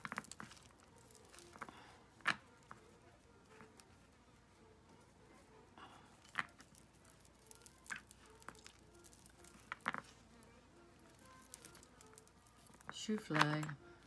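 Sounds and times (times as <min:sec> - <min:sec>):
jewelry clicking: 0:00.0 - 0:02.8, 0:06.2 - 0:14.0
housefly buzzing: 0:07.0 - 0:12.8.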